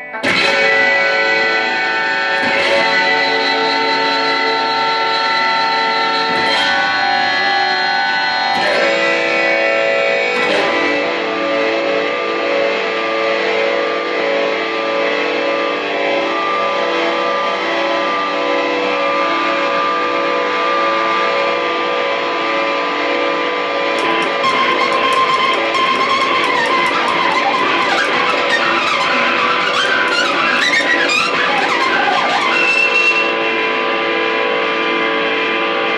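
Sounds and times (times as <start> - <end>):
bowed electric guitar drone: 0.0 - 35.9
picked guitar notes: 0.0 - 35.9.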